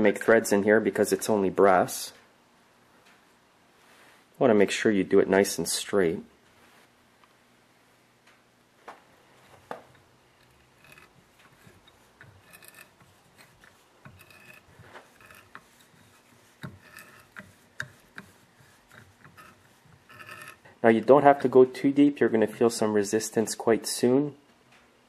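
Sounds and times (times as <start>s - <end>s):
tap wrench scraping and clicking: 9.4s - 20.7s.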